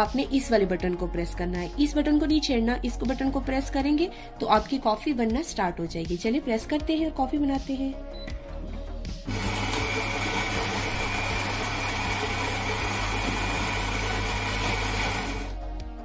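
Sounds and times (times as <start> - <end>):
coffee grinder grinding beans: 9.3 - 15.6.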